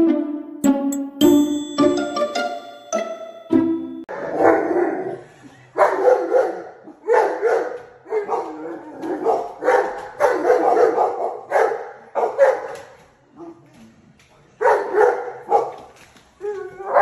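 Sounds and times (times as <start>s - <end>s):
dog barking excitedly: 5.8s - 13.0s, 14.6s - 15.9s.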